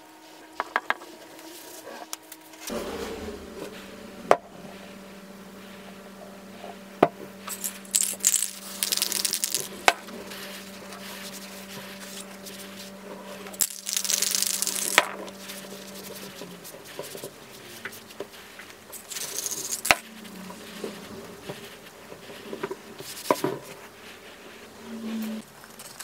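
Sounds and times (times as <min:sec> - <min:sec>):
faint steady hum: 0:00.0 - 0:26.0
cloth rubbing on steel shaft: 0:02.7 - 0:25.9.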